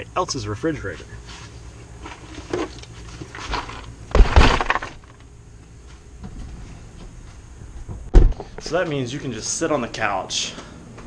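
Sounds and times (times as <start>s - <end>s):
thump: 4.1s - 4.9s, 8.1s - 8.5s.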